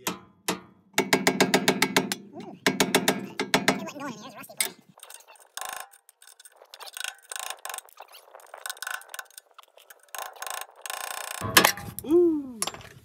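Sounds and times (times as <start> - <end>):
screwdriver scraping metal clip: 4.5 - 11.4.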